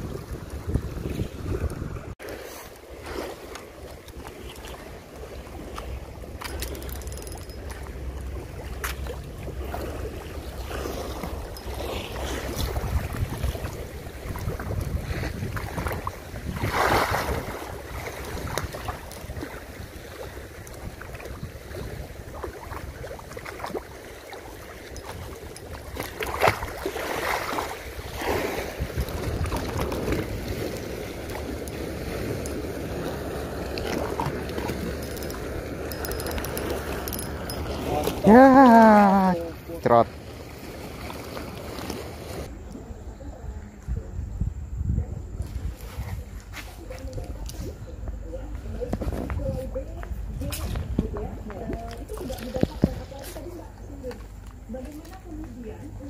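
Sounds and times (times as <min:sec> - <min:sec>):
wind rumbling on microphone: 0:00.0 - 0:02.2, 0:02.9 - 0:39.7, 0:40.3 - 0:56.0
water lapping at shore: 0:00.0 - 0:44.1, 0:45.3 - 0:56.0.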